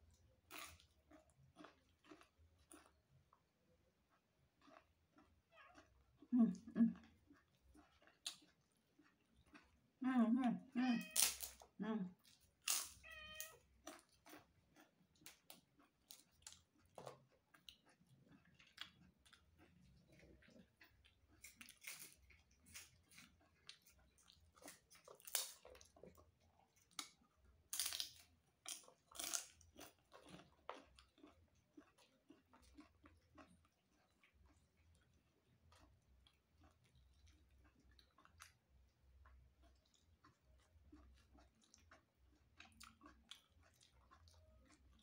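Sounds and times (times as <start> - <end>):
chewing with crunches: 0.0 - 45.0
cat meowing: 10.9 - 11.4, 13.0 - 13.6.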